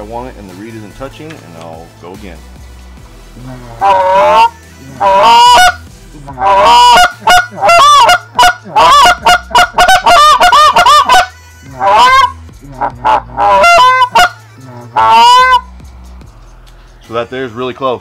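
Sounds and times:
goose call honks and clucks: 3.4 - 15.7.

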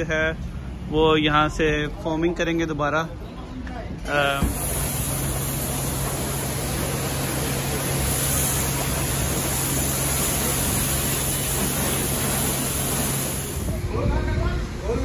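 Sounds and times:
pressure washer spray hissing: 4.2 - 13.9.

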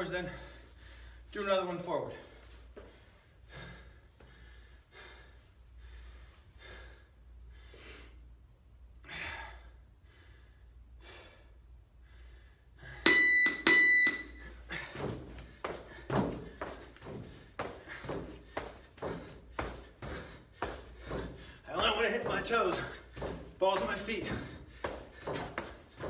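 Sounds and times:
man breathing hard: 0.2 - 1.4, 2.2 - 13.1, 14.5 - 26.0
interval timer beeps: 13.0 - 14.6.

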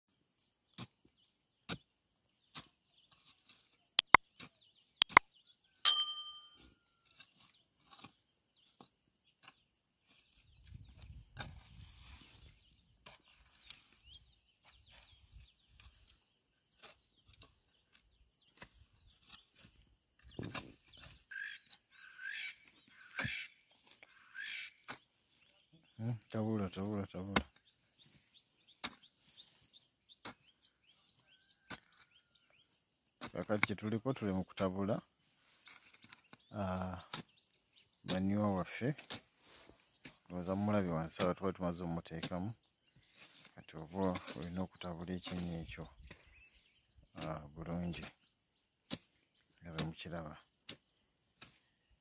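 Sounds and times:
hoe striking soil: 4.0 - 5.2, 5.9 - 8.2, 16.8 - 21.8, 27.2 - 32.0, 35.5 - 37.4, 38.0 - 41.5, 42.1 - 42.4, 43.0 - 44.6, 45.2 - 48.2, 48.8 - 50.0, 50.6 - 51.7.

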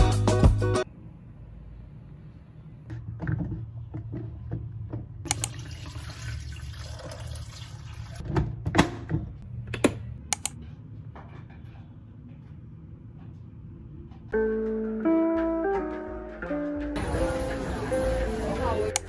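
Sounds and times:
water pouring into kettle: 5.4 - 8.2.

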